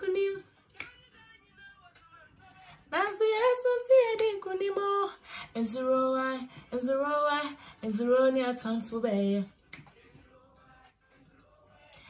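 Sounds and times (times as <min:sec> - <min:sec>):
woman singing: 0:00.0 - 0:09.9.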